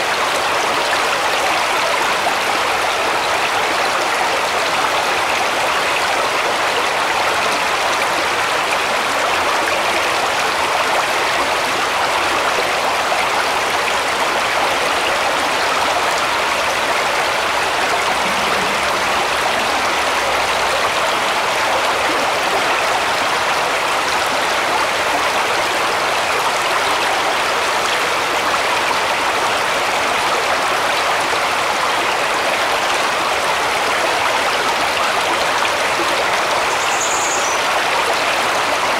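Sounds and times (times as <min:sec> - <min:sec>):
brook babbling over stones: 0:00.0 - 0:38.9.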